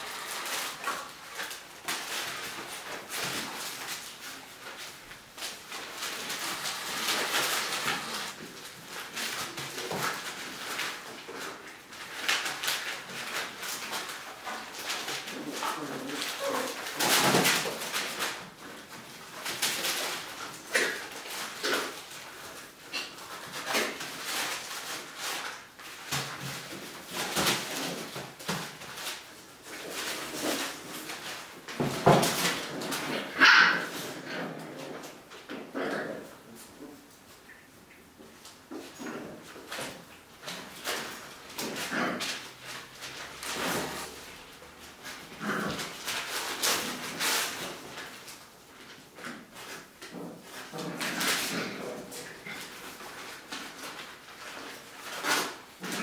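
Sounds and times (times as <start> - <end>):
puppies scuffling: 0.0 - 56.0.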